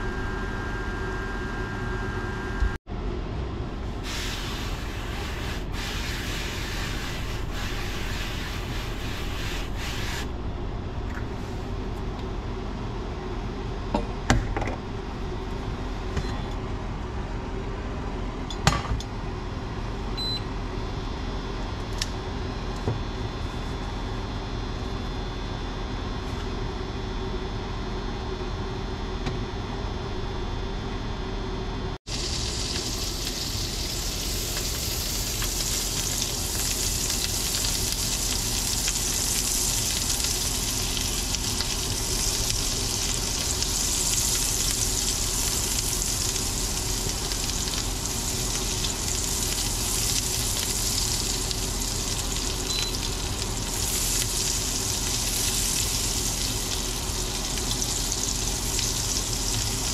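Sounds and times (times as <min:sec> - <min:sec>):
steady hum: 0:00.0 - 0:59.9
butter sizzling in a pan: 0:32.1 - 0:59.9.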